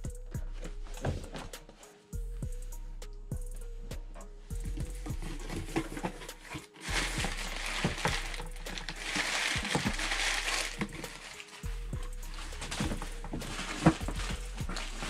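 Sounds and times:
packing paper crinkling: 0:05.2 - 0:15.0.

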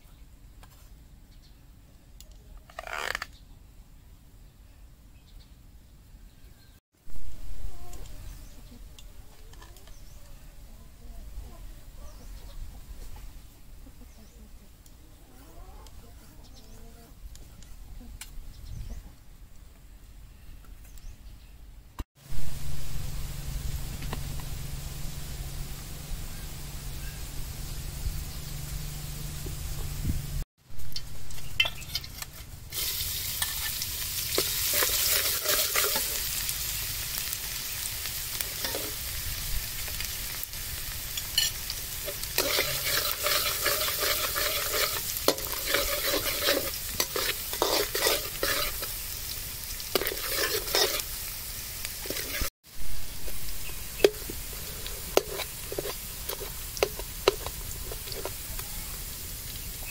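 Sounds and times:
garlic sizzling in hot oil: 0:22.2 - 0:59.9
metal spatula scraping wok: 0:30.8 - 0:37.3, 0:38.4 - 0:39.1, 0:41.0 - 0:52.5, 0:53.2 - 0:58.5.

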